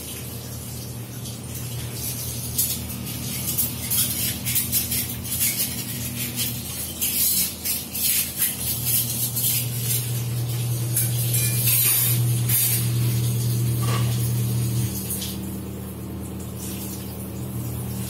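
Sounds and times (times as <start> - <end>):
dishes clinking in sink: 1.1 - 15.4.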